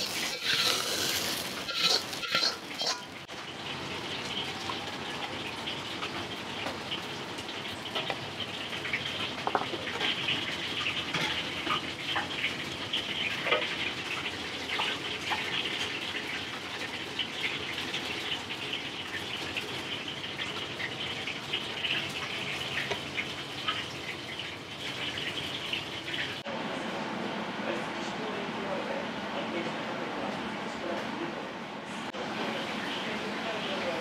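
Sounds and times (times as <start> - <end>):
food sizzling in hot oil: 0.0 - 26.5.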